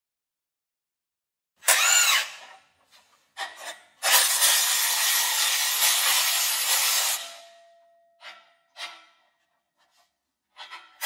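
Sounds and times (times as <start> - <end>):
cordless impact wrench running: 1.6 - 2.4.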